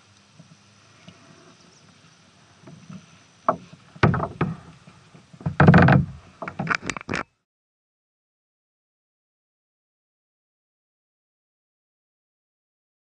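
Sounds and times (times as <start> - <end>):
faint water: 0.0 - 7.4
kayak hull knocking against dock: 3.5 - 4.7, 5.4 - 6.8.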